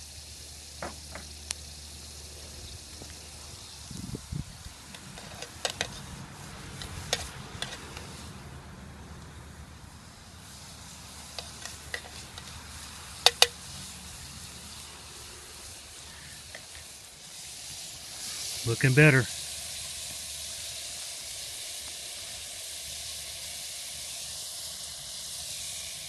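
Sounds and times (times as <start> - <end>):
vegetables sizzling in metal cup: 0.0 - 26.0
utensil scraping metal cup: 6.8 - 8.1.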